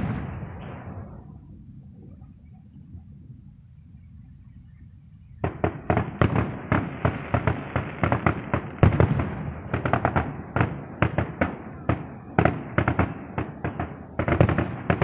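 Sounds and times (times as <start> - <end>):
fireworks bangs: 0.0 - 1.4, 5.4 - 15.0.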